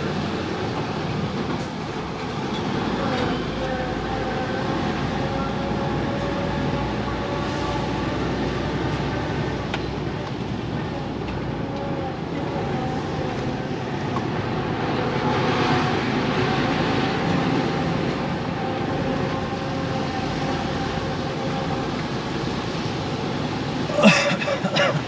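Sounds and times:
lorry diesel engine running: 0.0 - 25.0
road noise: 0.0 - 25.0.

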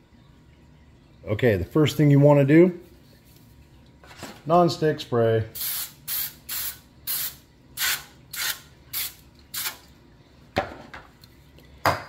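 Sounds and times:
aerosol spray hissing: 5.6 - 9.8.

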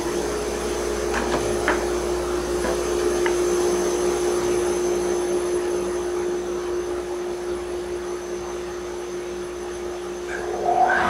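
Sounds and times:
planer humming with whine: 0.0 - 11.0.

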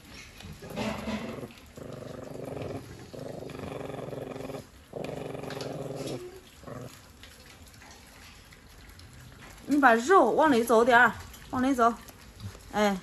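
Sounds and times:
puppy growling: 0.0 - 9.8.

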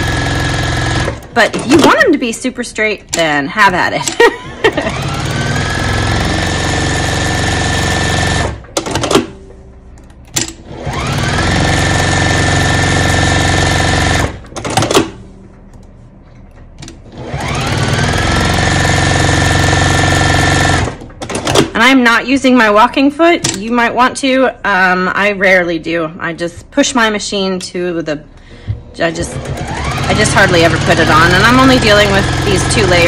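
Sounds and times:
sewing machine whirring: 0.0 - 2.2, 3.1 - 9.4, 10.4 - 15.2, 17.0 - 21.8, 29.2 - 33.0.

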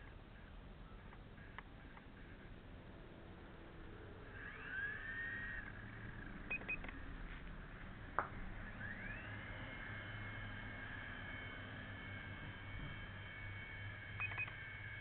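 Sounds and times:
helicopter motor and rotors whining: 0.9 - 15.0
sharp click: 14.2 - 14.6
short beeps: 14.2 - 14.6.

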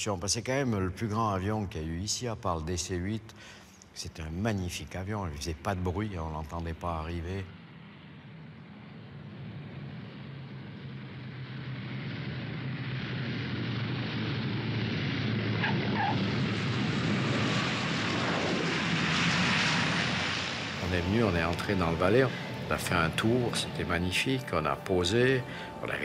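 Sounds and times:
propeller plane engine drone: 0.0 - 26.0
rushing noise: 7.5 - 26.0.

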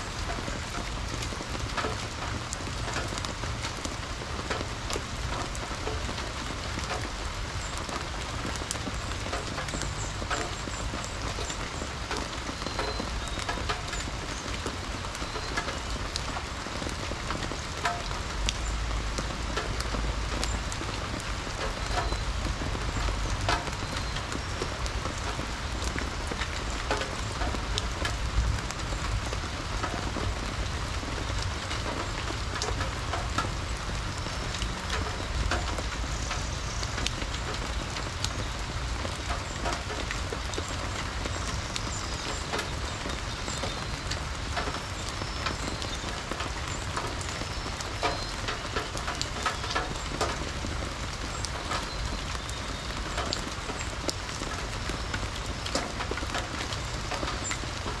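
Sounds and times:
raindrops ticking close by: 0.0 - 58.0
steady rain falling: 0.0 - 58.0.

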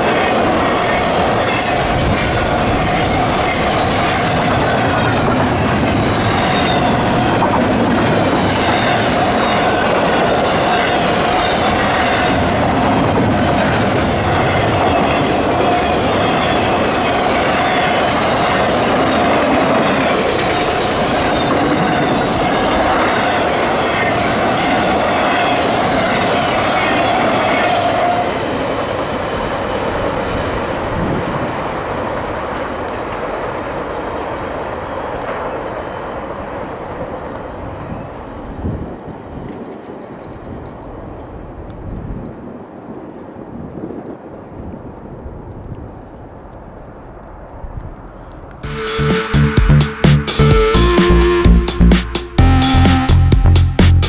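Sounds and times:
freight train rumbling past: 0.0 - 43.5, 48.6 - 54.0
high-pitched wheel squeal: 6.2 - 7.4.

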